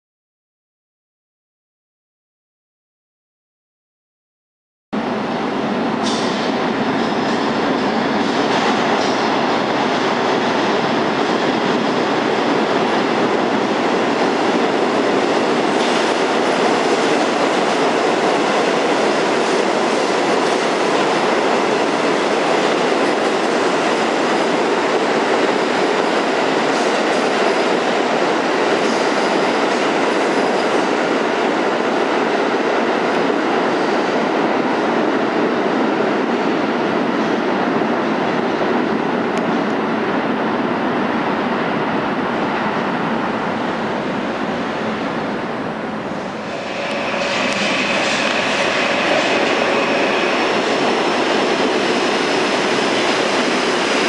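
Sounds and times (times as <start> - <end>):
subway train wheels rumbling: 5.0 - 54.0
train wheels clacking: 46.3 - 54.0.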